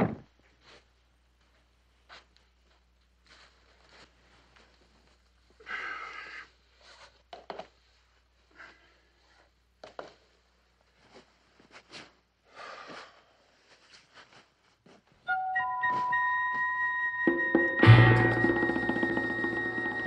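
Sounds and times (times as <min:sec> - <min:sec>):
man breathing heavily: 0:05.6 - 0:06.8, 0:12.5 - 0:13.6.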